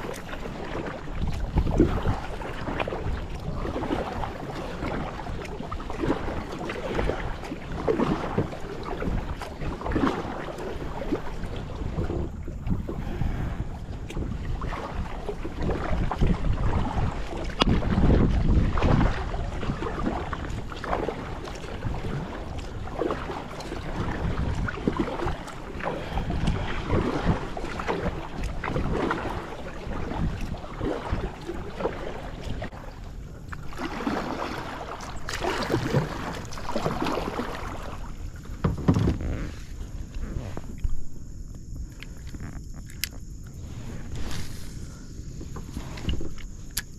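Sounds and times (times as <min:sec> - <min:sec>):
water splashing around kayak: 0:00.0 - 0:46.9
wind buffeting microphone: 0:00.0 - 0:46.9.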